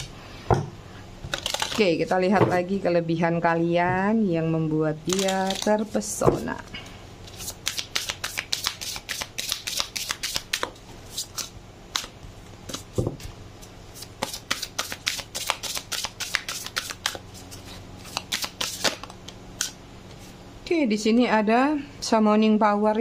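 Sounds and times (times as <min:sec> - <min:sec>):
cards being shuffled: 0:01.3 - 0:01.8, 0:05.1 - 0:05.9, 0:07.3 - 0:12.1, 0:14.0 - 0:19.8.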